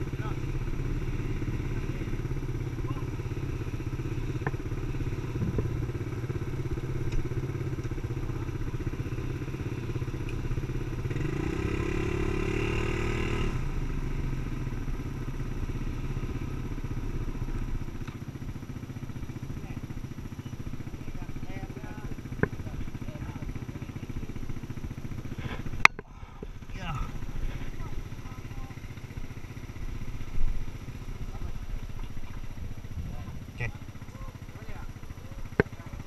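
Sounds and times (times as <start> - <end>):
atv engine idling: 0.0 - 36.0.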